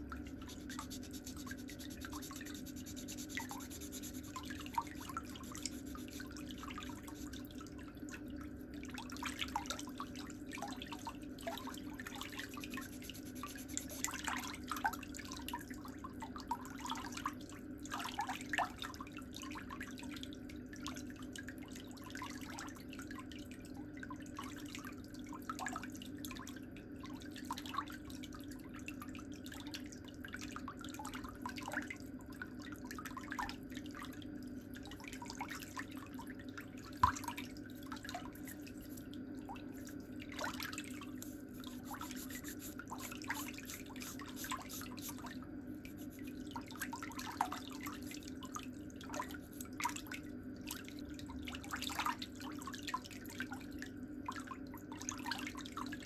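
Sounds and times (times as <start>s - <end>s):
steady low hum: 0.0s - 8.9s, 12.0s - 14.5s, 36.5s - 50.2s.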